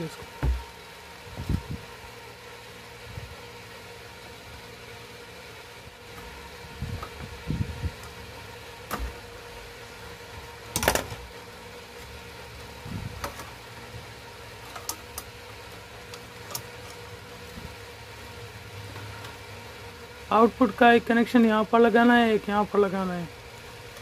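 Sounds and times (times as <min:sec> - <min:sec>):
steady background hum: 0:00.0 - 0:24.0
wire and metal clicks and rustles: 0:10.7 - 0:17.8.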